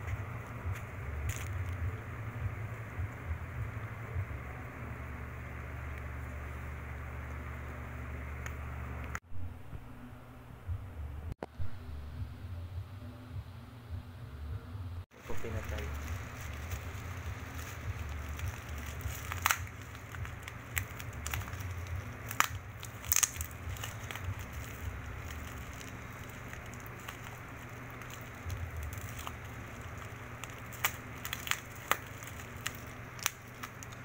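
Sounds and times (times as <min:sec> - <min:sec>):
steady low hum: 0:00.0 - 0:34.0
plastic packaging crinkling: 0:00.4 - 0:01.8, 0:15.2 - 0:34.0.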